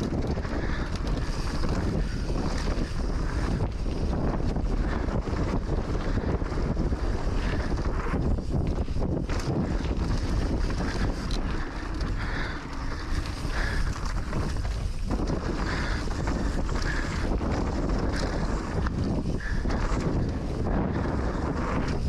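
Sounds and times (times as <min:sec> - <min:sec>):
tyres rumbling on dirt: 0:00.0 - 0:22.0
wind rushing over microphone: 0:00.0 - 0:22.0.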